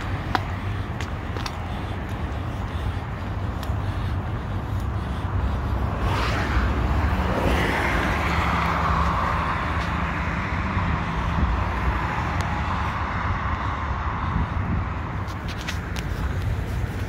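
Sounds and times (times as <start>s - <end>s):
road traffic passing: 0.0s - 17.0s
steady low rumble: 0.0s - 17.0s
vehicle whoosh: 5.8s - 13.0s.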